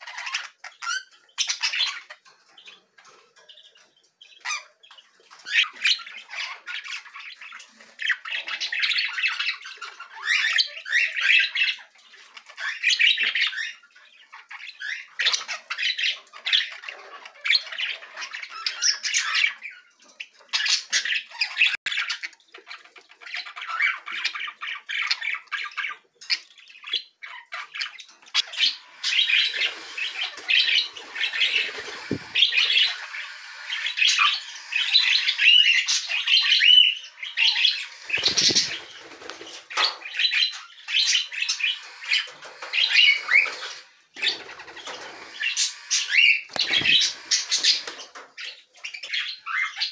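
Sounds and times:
budgerigars chattering: 12.6 - 49.9.

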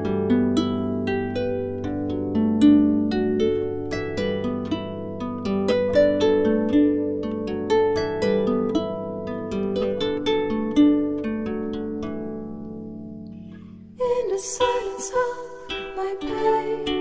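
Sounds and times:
plucked string melody: 0.0 - 17.0.

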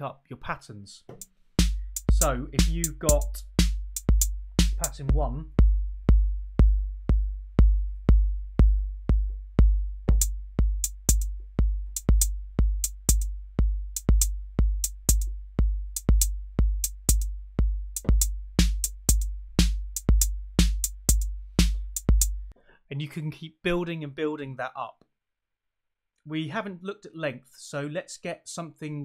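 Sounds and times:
electronic kick drum: 1.1 - 22.5
snare drum: 1.2 - 5.0, 18.0 - 22.3
hi-hats: 1.6 - 5.8, 10.0 - 22.6.

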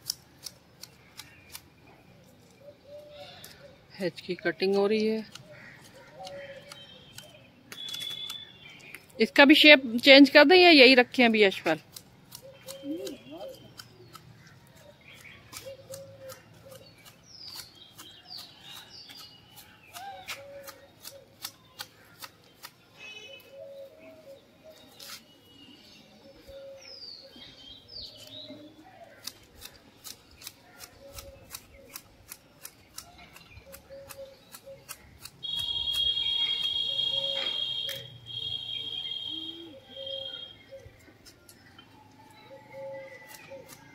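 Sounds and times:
hedge shears snipping: 0.0 - 2.6, 3.4 - 23.5, 24.8 - 25.3, 29.1 - 38.2, 43.2 - 43.9
birds chirping: 0.2 - 43.9.

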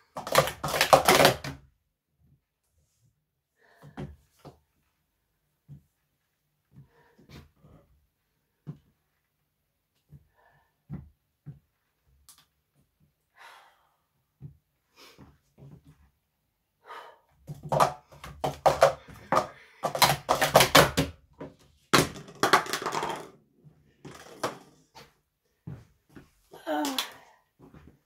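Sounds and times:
plastic cups clattering: 0.1 - 1.6, 17.5 - 23.4, 24.0 - 24.9.

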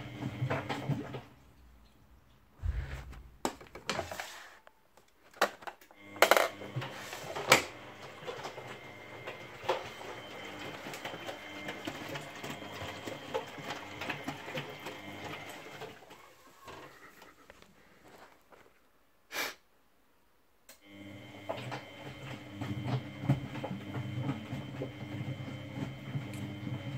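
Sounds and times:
washing machine drum motor humming: 0.0 - 1.4, 6.0 - 16.8, 20.8 - 26.9.

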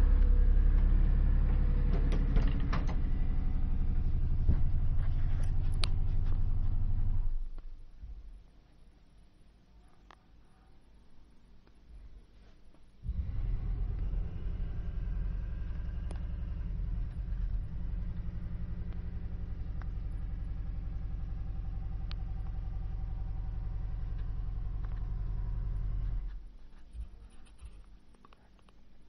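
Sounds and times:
machine motor humming: 13.0 - 26.3.

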